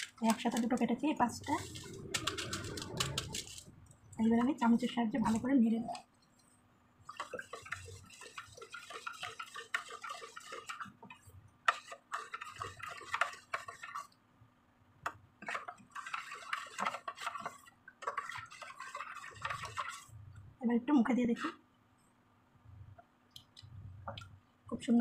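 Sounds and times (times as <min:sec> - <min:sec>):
spoon stirring in metal mug: 0:00.0 - 0:06.4, 0:07.0 - 0:14.2, 0:15.4 - 0:20.1.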